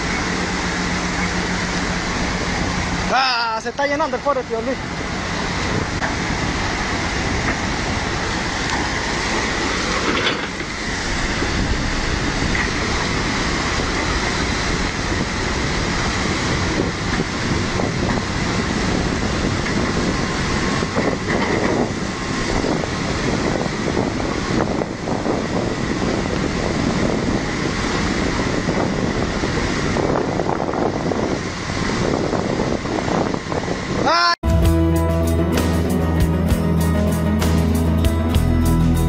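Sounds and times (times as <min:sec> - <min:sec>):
fast-flowing river rushing: 0:00.0 - 0:21.0
excavator diesel engine running: 0:00.0 - 0:39.0.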